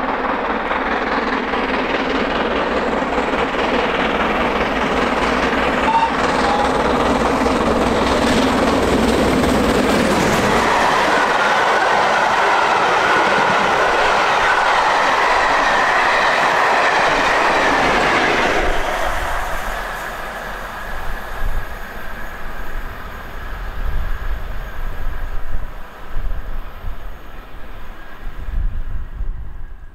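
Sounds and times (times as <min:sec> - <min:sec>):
train wheels clattering and squealing: 0:00.0 - 0:28.4
steam locomotive passing at speed: 0:00.0 - 0:29.9.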